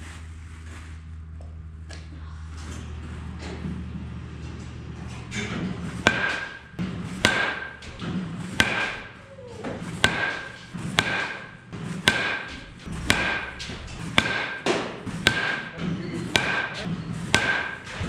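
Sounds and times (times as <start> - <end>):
bat cracking against baseball: 5.9 - 18.0.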